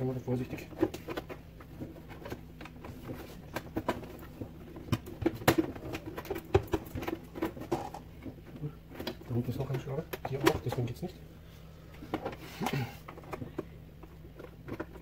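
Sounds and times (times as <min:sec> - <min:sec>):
plastic clicks and knocks: 0:00.7 - 0:10.9.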